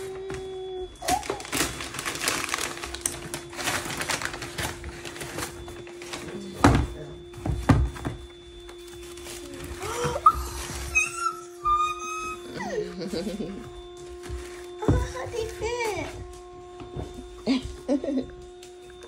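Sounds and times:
wrapping paper tearing and rustling: 0.9s - 6.3s, 8.8s - 11.2s.

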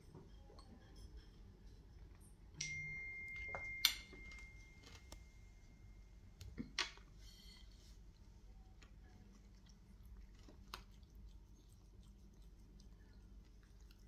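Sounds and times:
high ringing tone: 2.6s - 6.3s.

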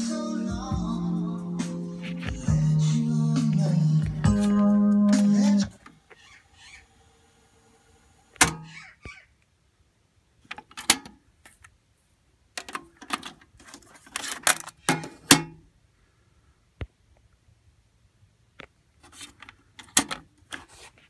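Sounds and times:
cassette deck door clicking: 8.4s - 8.7s.

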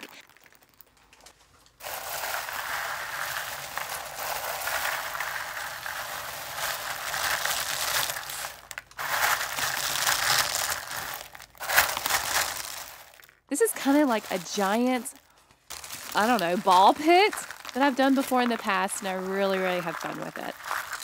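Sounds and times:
styrofoam balls rustling: 0.0s - 21.0s.

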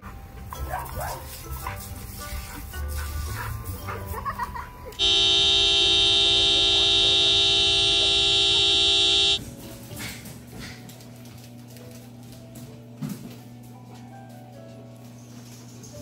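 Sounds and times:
car horn blaring: 5.0s - 9.4s.

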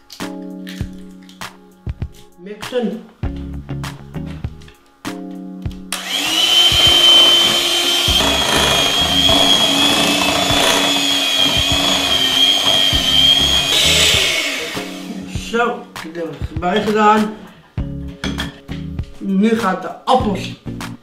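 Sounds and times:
background music with beat: 0.0s - 21.0s
electric hand mixer whining: 5.9s - 15.3s.

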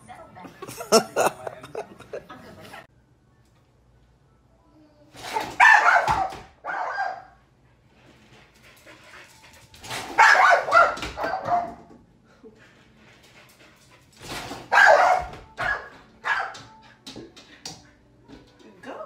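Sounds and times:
dog barking: 5.3s - 7.4s, 10.1s - 11.9s, 14.7s - 16.8s.

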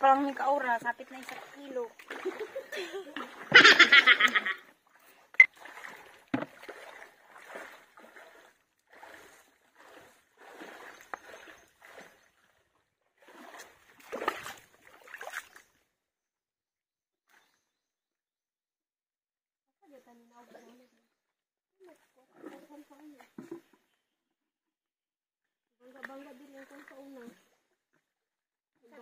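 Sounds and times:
loud splashing: 5.4s - 12.2s, 13.2s - 15.6s.

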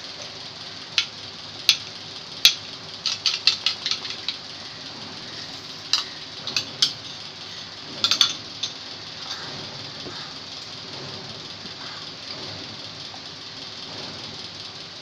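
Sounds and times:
curry boiling hiss: 0.0s - 15.0s
metal spoon tapping a pot: 8.0s - 8.8s.

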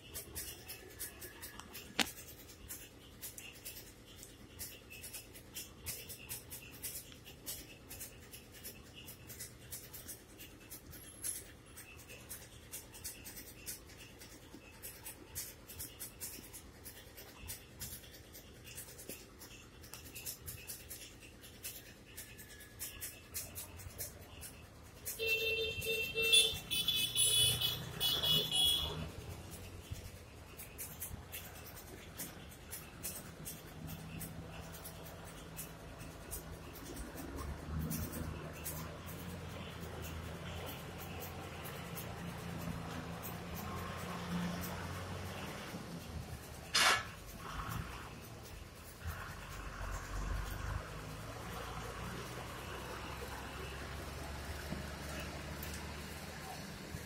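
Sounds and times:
faint crackling and ticking: 0.0s - 57.0s
vehicle passing with low rumble: 26.2s - 57.0s.

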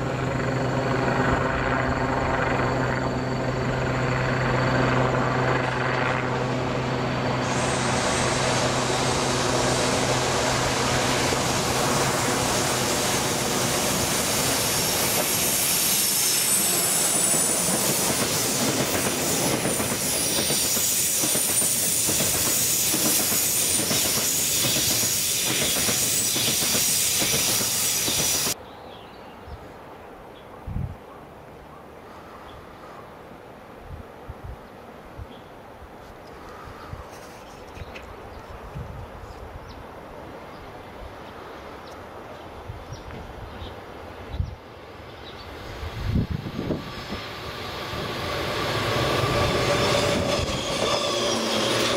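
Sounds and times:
rail noise: 0.0s - 29.0s, 31.4s - 51.9s
train low hum: 0.0s - 30.4s, 31.7s - 51.9s
high wheel squeal: 7.3s - 28.6s, 46.1s - 51.9s
rhythmic wheel clacks on rail joints: 17.0s - 28.6s.

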